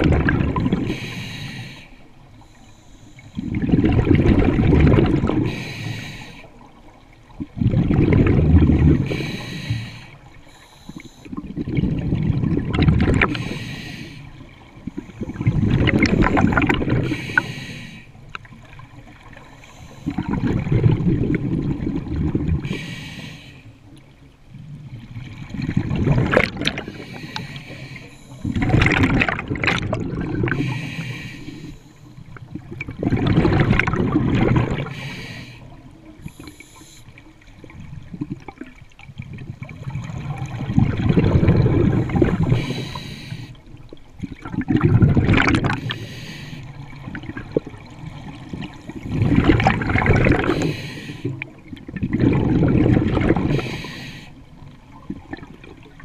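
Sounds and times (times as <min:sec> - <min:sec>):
exhaled bubbles gurgling underwater: 0:00.0 - 0:56.0
diver breathing through regulator: 0:00.8 - 0:03.6, 0:05.3 - 0:06.5, 0:08.9 - 0:11.4, 0:13.2 - 0:18.2, 0:22.6 - 0:23.8, 0:26.6 - 0:28.6, 0:30.4 - 0:32.3, 0:34.7 - 0:37.2, 0:41.6 - 0:43.6, 0:45.7 - 0:46.9, 0:50.2 - 0:51.5, 0:53.3 - 0:54.4.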